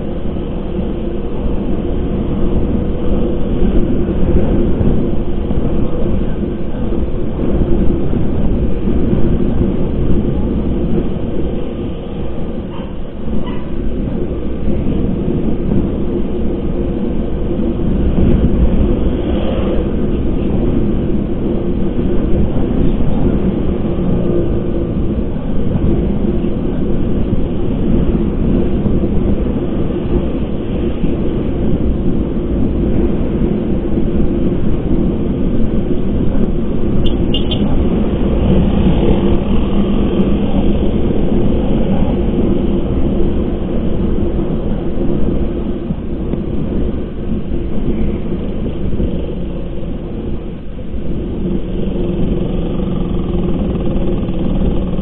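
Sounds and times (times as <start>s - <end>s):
wind rumble on microphone: 0.0s - 55.0s
motorcycle engine running: 51.2s - 55.0s.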